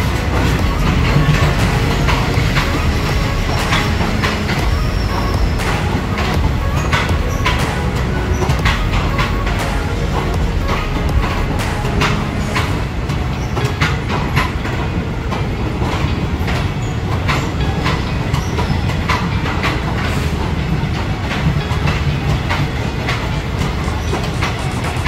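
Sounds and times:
low train rumble: 0.0 - 25.0
train wheels clacking over rail joints: 0.0 - 25.0.

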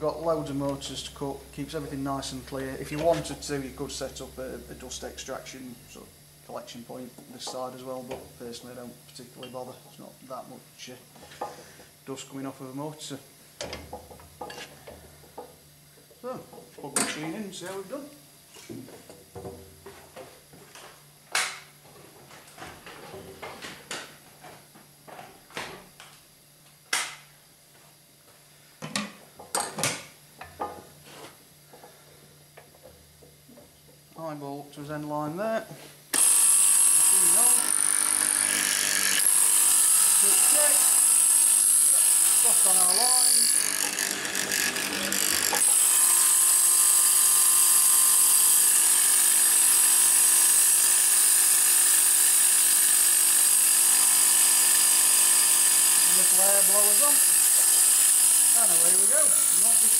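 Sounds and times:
machine motor humming: 36.2 - 46.2.

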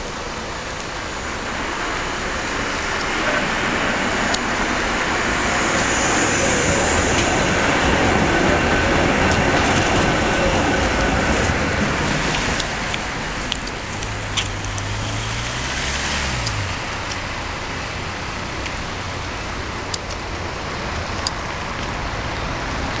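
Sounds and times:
tram running on rails: 0.0 - 23.0
sharp clicks: 12.1 - 17.5.

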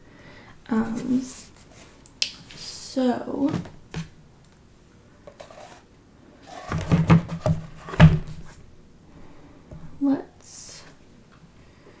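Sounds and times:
bins and bobbins knocking and rattling: 6.6 - 8.4.

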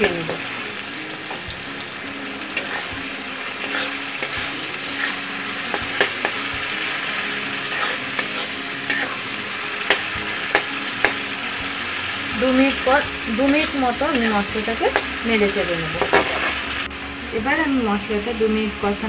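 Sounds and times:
masala sizzling in oil: 0.0 - 19.0
metal spatula scraping pan: 2.5 - 11.2, 12.3 - 16.7.

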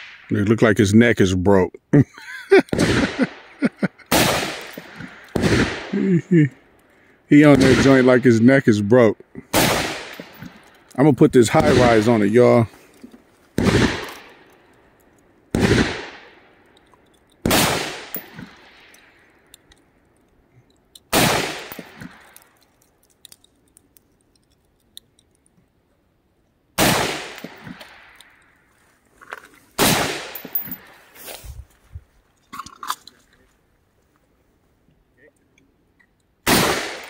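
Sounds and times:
rifle shots echoing: 2.7 - 6.2, 7.4 - 8.6, 9.4 - 10.8, 11.4 - 12.7, 13.6 - 14.6, 15.5 - 16.6, 17.4 - 19.2, 21.1 - 22.4, 26.8 - 28.2, 29.8 - 31.0, 36.4 - 37.0.

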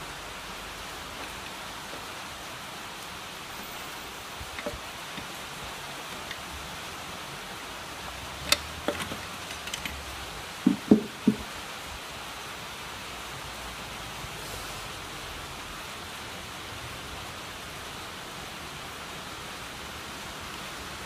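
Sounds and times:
steady hiss: 0.0 - 21.0
loud knock: 10.6 - 11.5.

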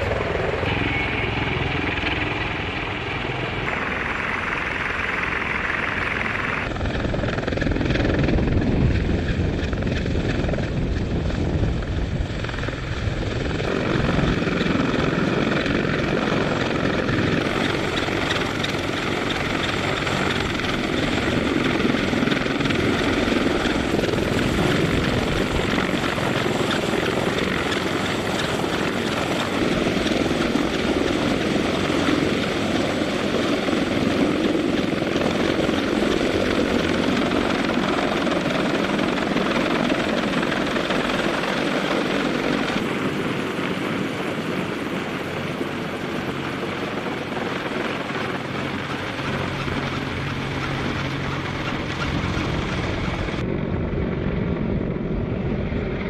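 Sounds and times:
helicopter hovering overhead: 0.0 - 56.0.

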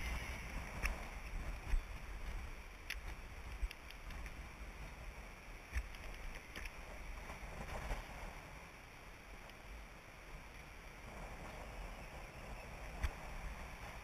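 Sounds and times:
faint ticks: 0.0 - 8.1, 9.3 - 9.7
wind rumbling on microphone: 0.0 - 14.0.

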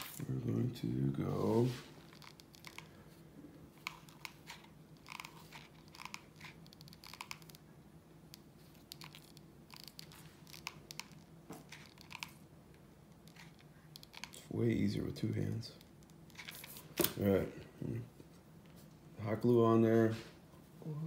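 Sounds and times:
low steady hum: 0.0 - 21.0
clicks and crinkles of handling: 8.3 - 14.4.

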